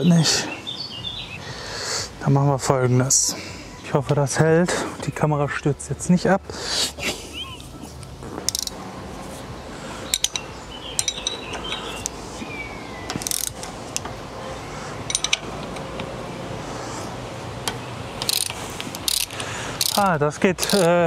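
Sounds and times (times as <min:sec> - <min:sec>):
ratchet wrench clicking: 0:08.5 - 0:08.8, 0:10.1 - 0:12.2, 0:13.1 - 0:14.1, 0:15.1 - 0:15.5, 0:17.6 - 0:21.0
light metal clinks: 0:10.1 - 0:12.2, 0:15.0 - 0:15.6.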